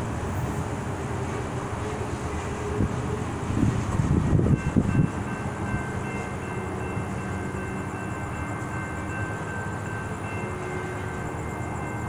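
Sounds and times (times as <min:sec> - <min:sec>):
train rumbling: 0:00.0 - 0:12.0
electronic crossing bell ringing: 0:04.5 - 0:12.0.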